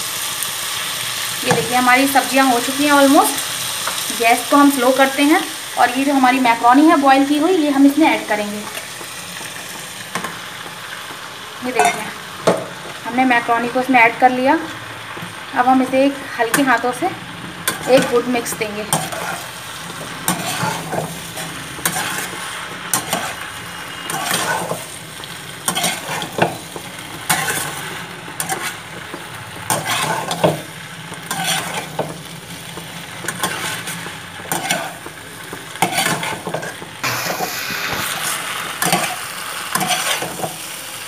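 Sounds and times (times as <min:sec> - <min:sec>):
light sizzle of frying: 0:00.0 - 0:41.0
metal spatula scraping a pan: 0:11.6 - 0:12.2, 0:17.6 - 0:40.6.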